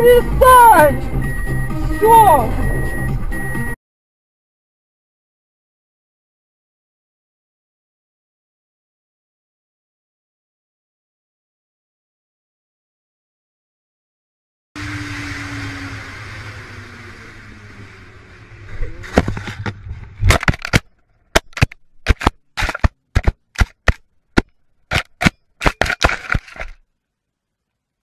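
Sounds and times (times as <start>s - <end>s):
road and engine noise: 0.0s - 3.8s, 14.8s - 25.0s
sharp impact cracks: 20.2s - 26.8s.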